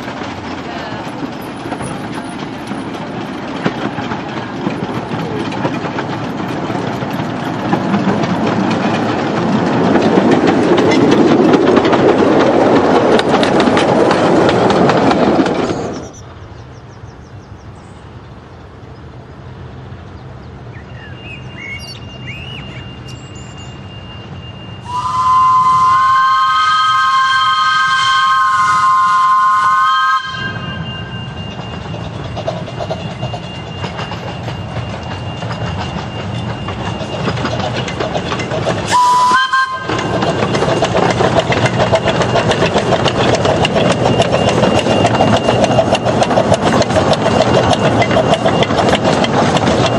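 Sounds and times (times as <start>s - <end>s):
coaches rumbling: 0.0s - 16.2s
train wheels clattering: 0.0s - 18.0s, 19.5s - 49.9s.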